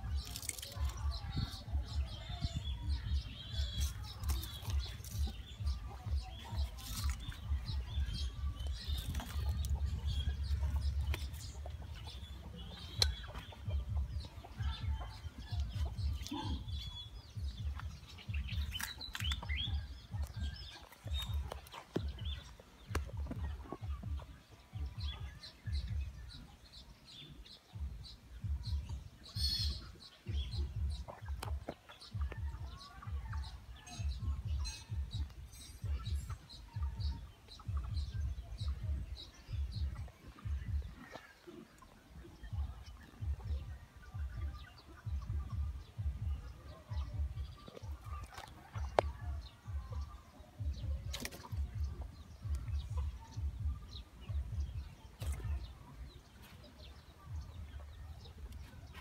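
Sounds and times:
birds chirping: 0.0 - 59.0
wind buffeting microphone: 0.8 - 26.4.

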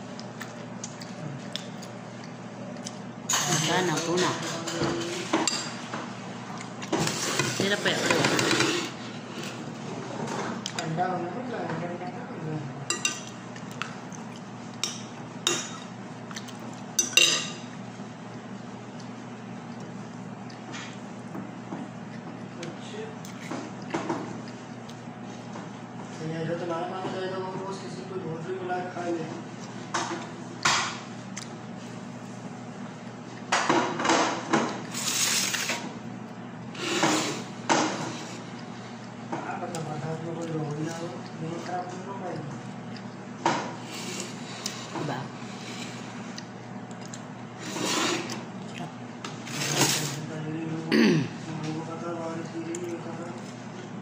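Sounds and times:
steady low hum: 0.0 - 54.0
dishes clinking: 17.0 - 17.7.

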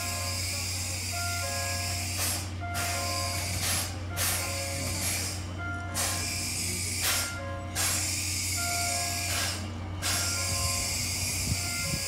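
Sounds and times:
steam hiss bursts: 1.8 - 4.4, 6.0 - 10.3.

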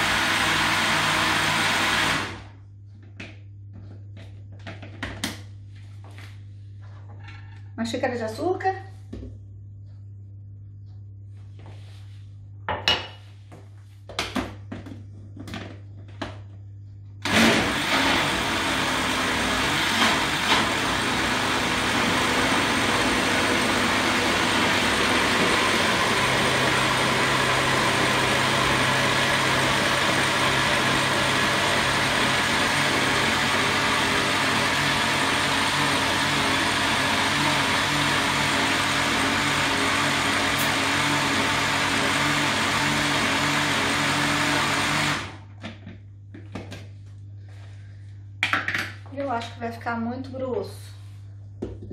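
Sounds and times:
electric blender running: 0.0 - 2.6, 17.2 - 45.5.

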